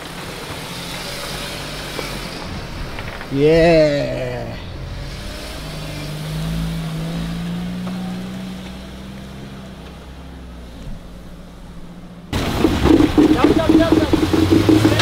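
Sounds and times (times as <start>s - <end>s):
vehicle engine under load: 0.0s - 15.0s.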